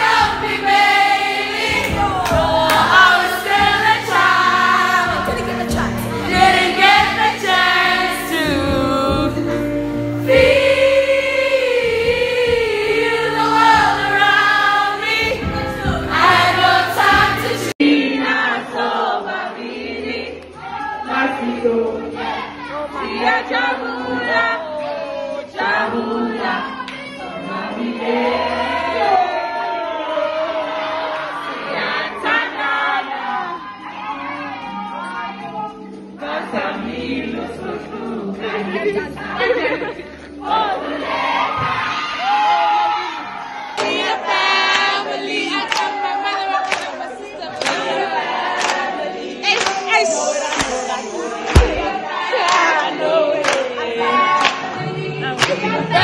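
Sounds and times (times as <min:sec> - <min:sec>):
crowd singing and chanting: 0:00.0 - 0:56.0
sharp hit keeping time: 0:50.0 - 0:52.0.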